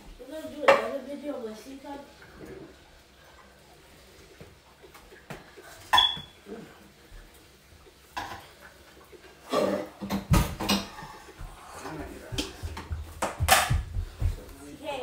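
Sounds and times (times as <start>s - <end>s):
dishes and utensils clattering: 5.8s - 6.4s, 8.2s - 8.6s, 9.4s - 13.9s.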